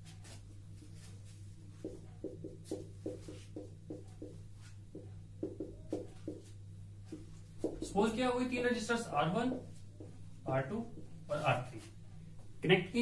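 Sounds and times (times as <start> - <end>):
marker strokes on whiteboard: 0.0 - 8.0.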